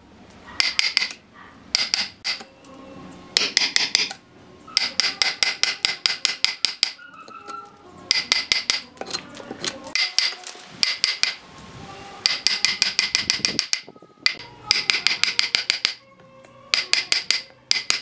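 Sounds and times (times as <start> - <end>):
hammer striking chisel into wood: 0.6 - 2.5, 3.4 - 4.2, 4.8 - 7.0, 8.1 - 9.2, 10.0 - 11.4, 12.2 - 16.0, 16.7 - 18.0.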